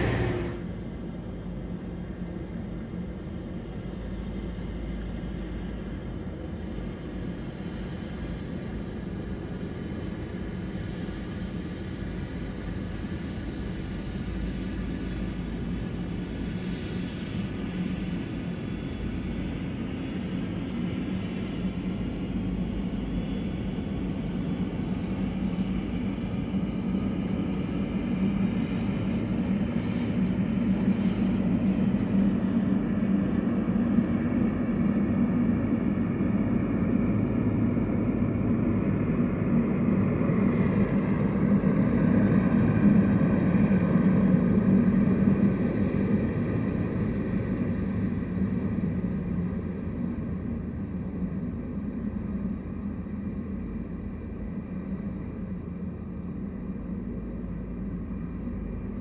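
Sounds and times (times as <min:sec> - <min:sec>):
jet engines rumbling: 0:00.0 - 0:00.6
faint engine whine: 0:00.0 - 0:59.0.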